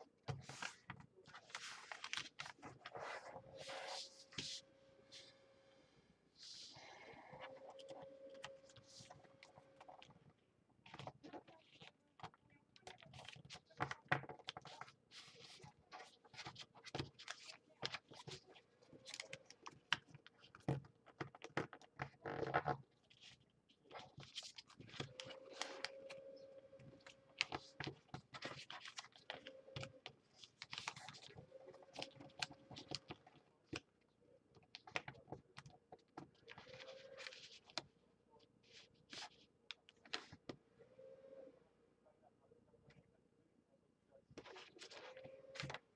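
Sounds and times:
paper crackling and rustling: 0.3 - 4.6, 10.8 - 33.9, 34.7 - 37.9.

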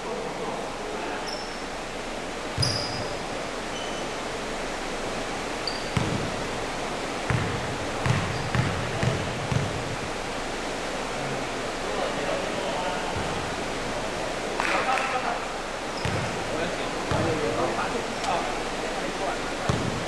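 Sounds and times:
background hiss: 0.0 - 20.0
shoe squeak: 1.3 - 1.6, 2.6 - 4.1, 5.6 - 6.2, 8.2 - 8.6
basketball bouncing on gym floor: 5.7 - 6.3, 7.3 - 9.9, 16.0 - 16.4, 17.1 - 17.4, 19.7 - 20.0.

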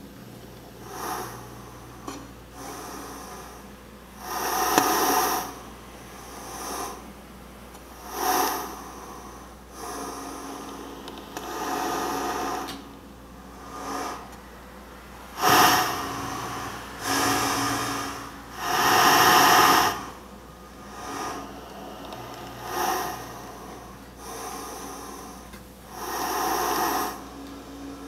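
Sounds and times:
accordion bellows breathing: 8.0 - 12.8, 15.4 - 28.0.

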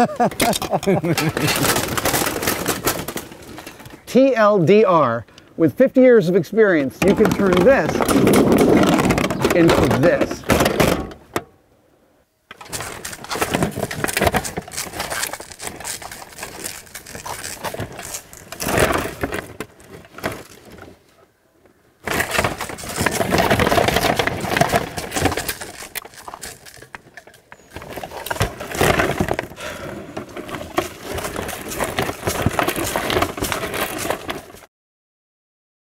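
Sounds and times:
plate armour clanking: 0.2 - 4.0, 6.9 - 11.4.

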